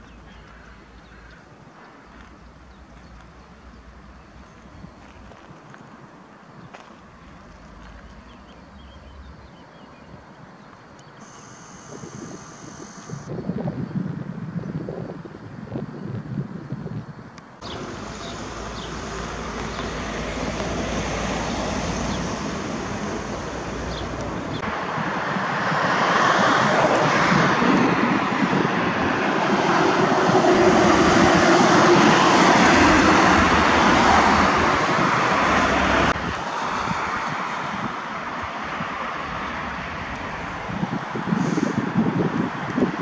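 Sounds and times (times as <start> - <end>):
loud rushing engine-like noise: 17.6 - 42.3.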